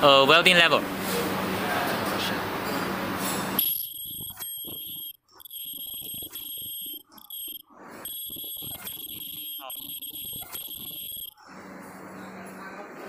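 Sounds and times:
high-pitched electronic alarm tone: 3.6s - 11.6s
machine whirring: 3.6s - 12.2s.

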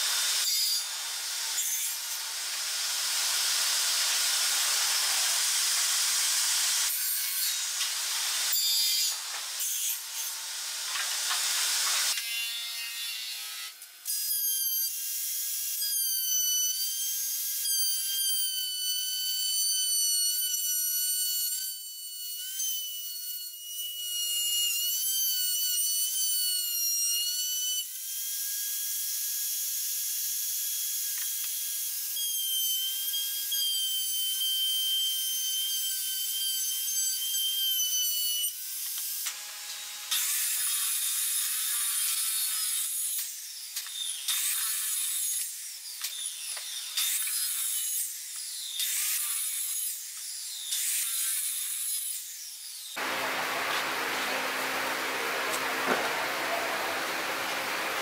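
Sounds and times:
router high whine: 53.0s - 58.0s.

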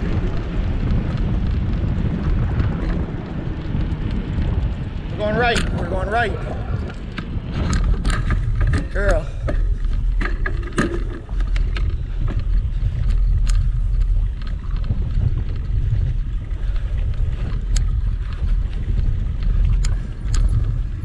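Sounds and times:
bike tyres rumbling over grass: 0.0s - 21.0s
sharp clicks and rattles: 0.0s - 21.0s
wind on microphone: 0.0s - 21.0s.

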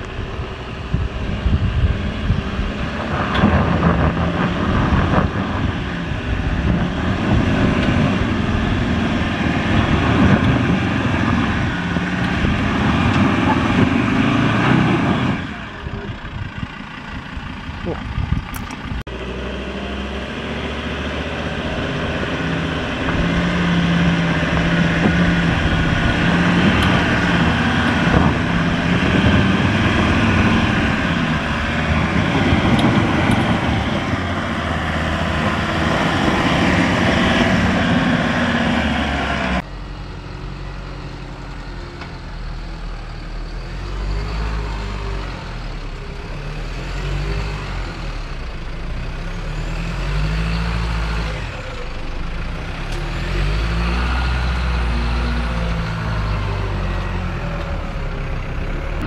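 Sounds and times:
deep truck diesel engine running: 0.0s - 59.0s
diesel engine working hard: 0.0s - 59.0s.

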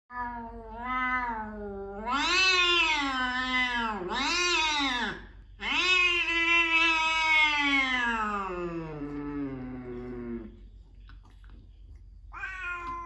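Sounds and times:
cat yowling: 0.1s - 9.0s, 12.3s - 13.0s.

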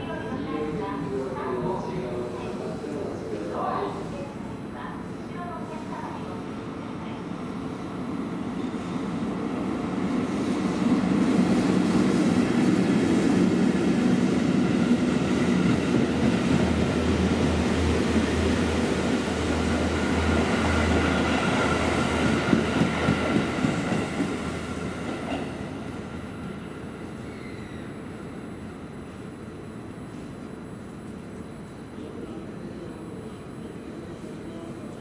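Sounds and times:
train running through station: 0.0s - 35.0s.

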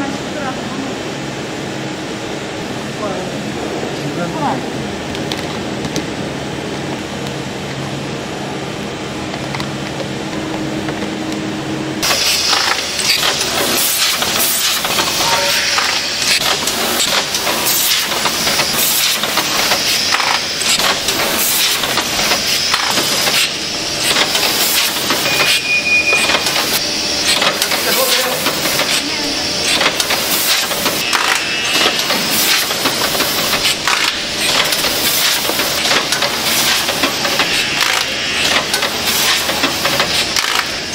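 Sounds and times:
low machine hum: 0.0s - 40.9s
packaging machine clattering: 26.2s - 29.1s, 29.7s - 40.9s.

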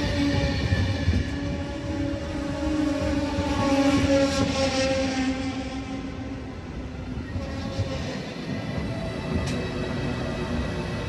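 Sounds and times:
train rail rumble: 0.0s - 11.0s.

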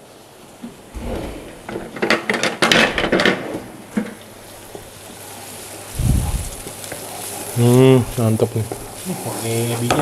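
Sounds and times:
oil crackling: 0.6s - 10.0s
paste sizzling in hot oil: 3.9s - 10.0s.

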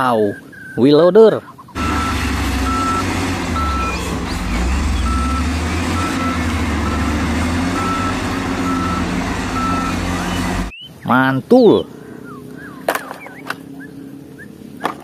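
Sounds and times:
diesel engine running: 1.8s - 10.7s
reversing alarm beeping: 1.8s - 10.7s.

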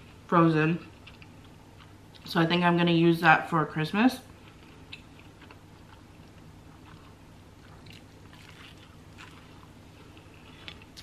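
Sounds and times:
low room hum: 0.0s - 11.0s
close-up chewing: 4.4s - 11.0s.

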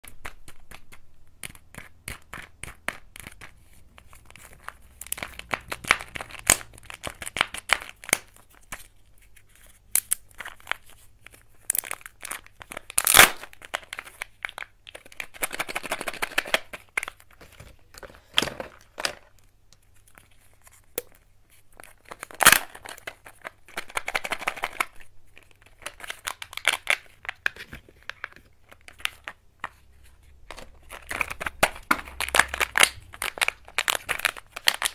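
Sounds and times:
plastic shells clicking and knocking: 0.0s - 8.3s, 21.8s - 29.8s, 30.5s - 34.9s
foil crinkling and tearing: 11.6s - 16.7s
sharp plastic clacks: 22.1s - 29.8s.

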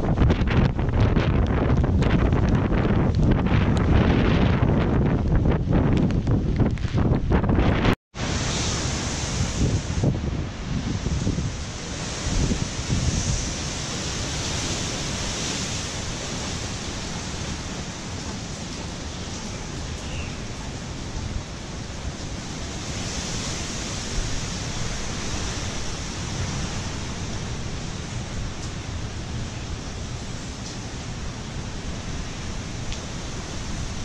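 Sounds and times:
strong wind rushing: 0.0s - 34.0s
wind buffeting the microphone: 0.0s - 34.0s
heavy rain: 8.2s - 34.0s.

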